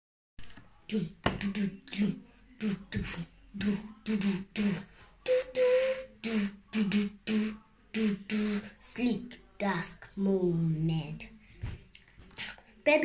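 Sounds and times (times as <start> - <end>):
girl beatboxing: 0.9 - 9.8.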